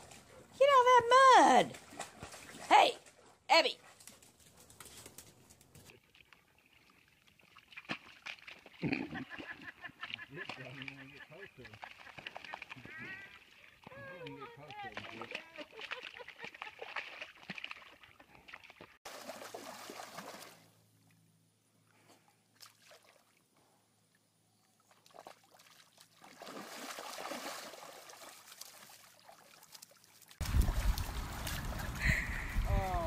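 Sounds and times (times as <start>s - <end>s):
muddy water sloshing and splashing: 1.5s - 3.3s, 5.9s - 20.9s, 22.6s - 23.5s, 24.7s - 33.0s.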